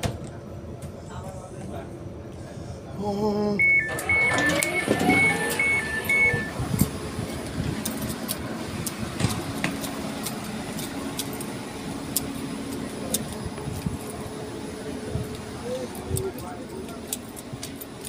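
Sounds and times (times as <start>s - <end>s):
train humming: 0.0s - 18.0s
faint voices: 0.2s - 11.5s, 12.4s - 18.0s
footsteps on platform: 6.7s - 11.5s.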